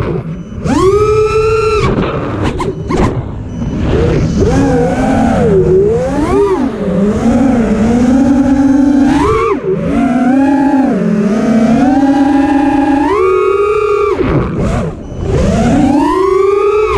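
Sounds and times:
quadcopter motors whining: 0:00.0 - 0:16.9.

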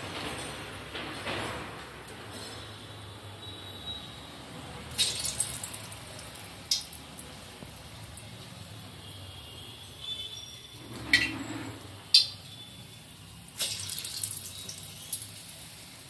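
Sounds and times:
frying in hot oil sizzle: 0:04.8 - 0:16.0
oil crackling: 0:04.9 - 0:09.2, 0:13.5 - 0:16.0.

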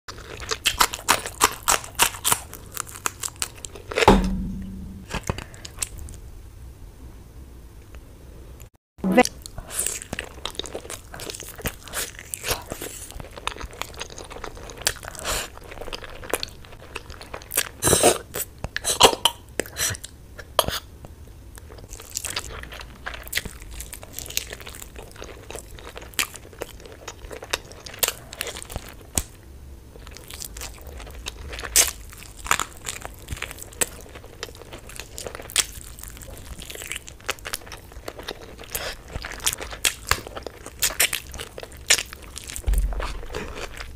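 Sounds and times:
crunchy bites and chewing: 0:00.1 - 0:04.1, 0:30.0 - 0:43.9.

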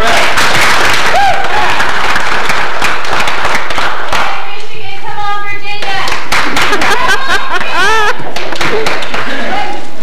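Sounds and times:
audience clapping: 0:00.0 - 0:04.6, 0:05.7 - 0:09.8.

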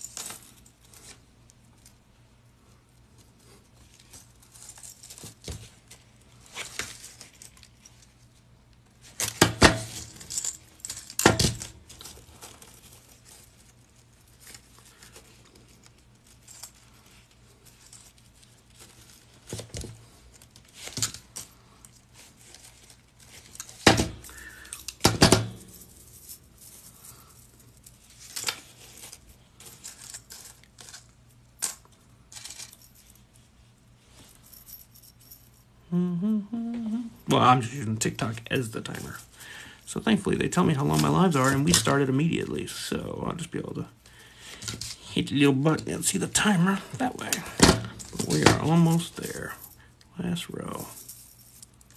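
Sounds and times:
metal rings clinking: 0:09.0 - 0:19.4, 0:20.0 - 0:33.4, 0:46.9 - 0:51.9.

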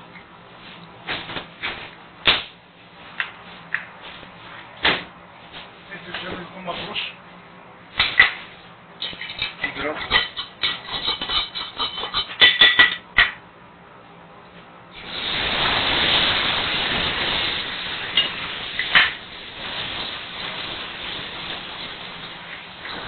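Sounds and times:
sauce sizzling in hot pan: 0:15.0 - 0:23.0.

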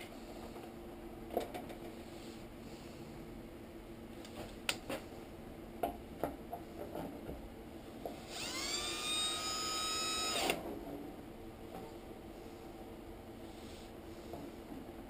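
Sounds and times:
drill motor whining: 0:08.3 - 0:10.6.

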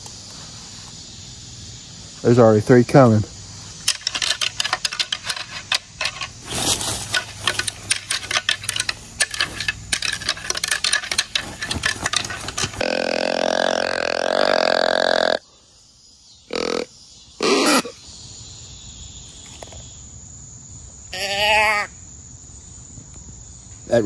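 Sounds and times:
antlers clacking together: 0:03.8 - 0:12.9
deer grunt call: 0:12.8 - 0:15.4.

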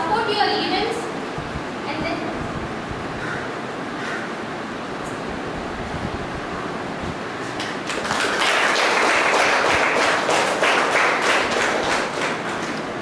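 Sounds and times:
steady background hiss: 0:00.0 - 0:13.0
small group clapping: 0:07.6 - 0:13.0.

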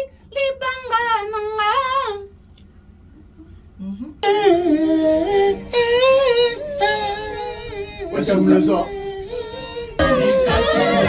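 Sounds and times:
person singing a hymn unaccompanied: 0:04.2 - 0:11.0.

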